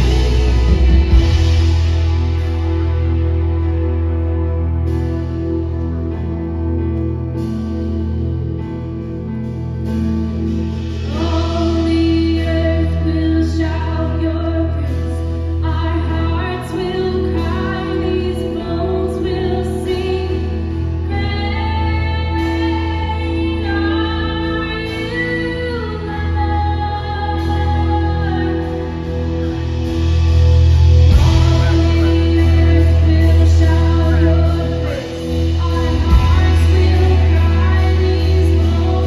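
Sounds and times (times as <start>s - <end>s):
woman singing lead: 0.0s - 5.1s, 10.6s - 39.0s
worship band playing slow song: 0.0s - 39.0s.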